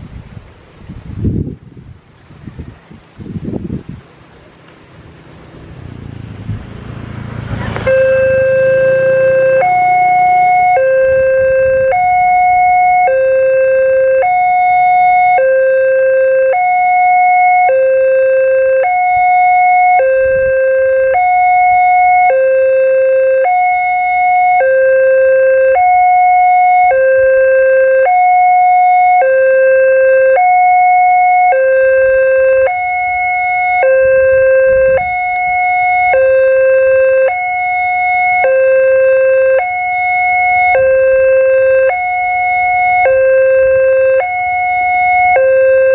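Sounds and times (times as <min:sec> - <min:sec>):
level crossing two-tone alarm: 0:07.8 - 0:45.9.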